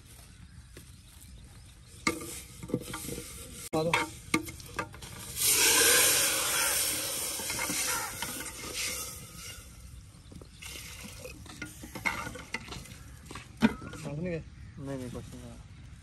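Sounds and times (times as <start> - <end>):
metal utensils clattering on pan: 2.0 - 9.6, 11.4 - 14.1
food sizzling in hot oil: 2.9 - 10.0.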